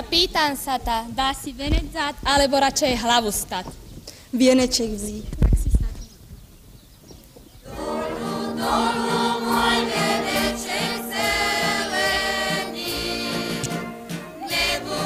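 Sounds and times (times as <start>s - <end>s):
group of voices singing: 7.7s - 15.0s.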